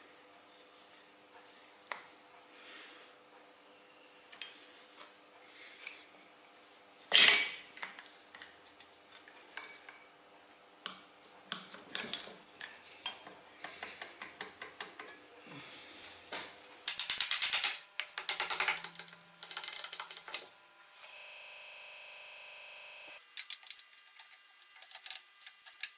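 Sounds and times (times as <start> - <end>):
hammer tapping metal: 16.9 - 19.6.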